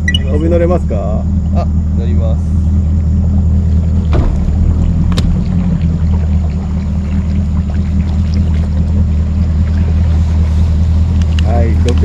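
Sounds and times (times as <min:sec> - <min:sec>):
outboard engine idling: 0:00.0 - 0:12.0
sharp knock: 0:04.1 - 0:05.6.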